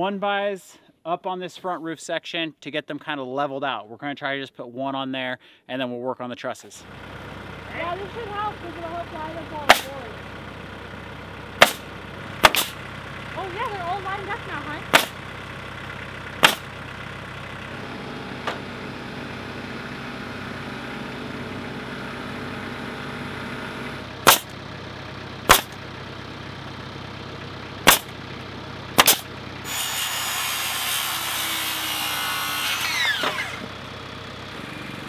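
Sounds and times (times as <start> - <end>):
nail gun firing: 9.7 - 9.9, 11.6 - 12.8, 14.9 - 15.2, 16.4 - 16.6, 24.3 - 24.5, 25.5 - 25.8, 27.9 - 28.1, 29.0 - 29.3
power saw cutting: 11.6 - 12.8, 14.2 - 15.2, 16.4 - 16.7, 24.2 - 24.5, 27.8 - 28.2, 29.0 - 33.8.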